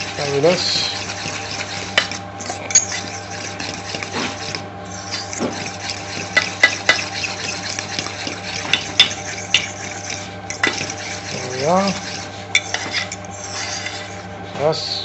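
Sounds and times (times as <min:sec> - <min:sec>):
fork beating egg mixture: 0:00.0 - 0:14.3
steady low hum: 0:00.0 - 0:15.0
fork clinking against metal bowl: 0:01.0 - 0:13.3.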